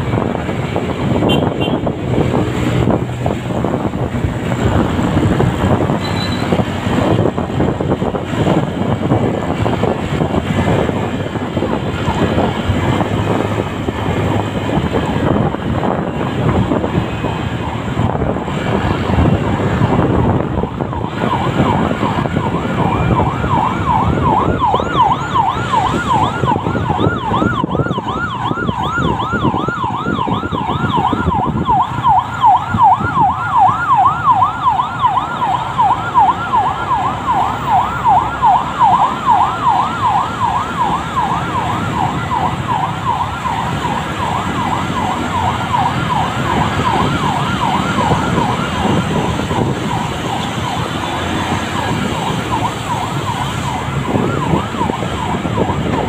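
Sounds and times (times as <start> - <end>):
wind and road rumble: 0.0 - 56.0
electronic siren yelping: 20.5 - 56.0.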